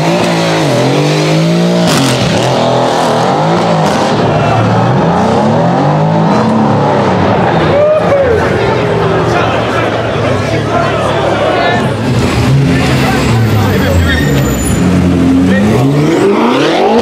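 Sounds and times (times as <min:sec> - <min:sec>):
car engines revving: 0:00.0 - 0:17.0
tyres squealing: 0:12.5 - 0:15.9.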